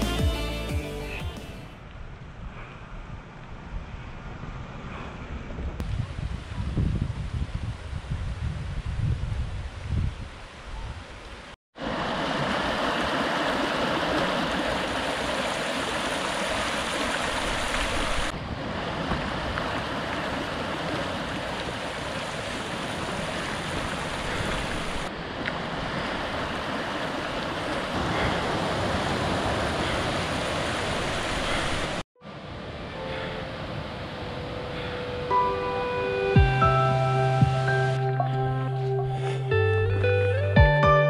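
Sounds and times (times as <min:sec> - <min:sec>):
stream running over stones: 0:11.8 - 0:32.0.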